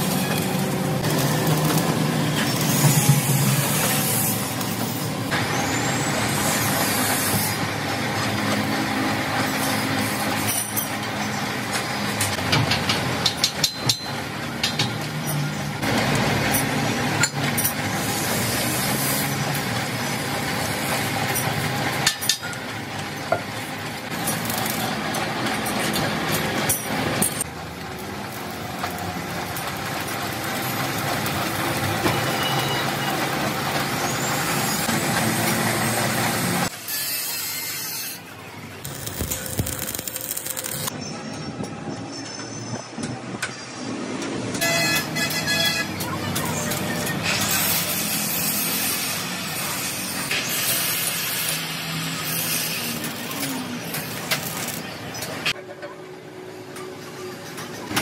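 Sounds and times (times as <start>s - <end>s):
arc welding: 0.0s - 41.0s, 44.6s - 55.6s
hissing crackling workshop noise: 0.0s - 58.0s
hammer striking steel: 12.5s - 15.4s.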